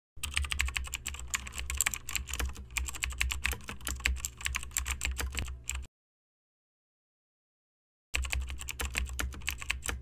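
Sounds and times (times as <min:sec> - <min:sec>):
rapid typing on keyboard: 0:00.2 - 0:05.9, 0:08.2 - 0:10.0.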